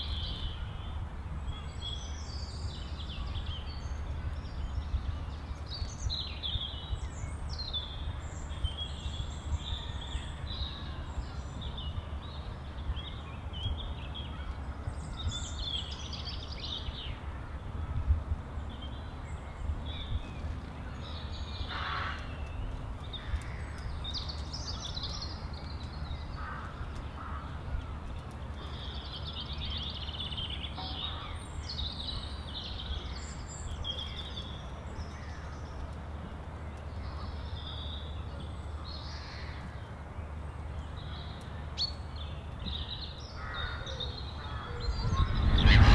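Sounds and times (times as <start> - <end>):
songbirds chirping and singing: 0.0 - 45.9
steady low rumble: 44.2 - 45.9.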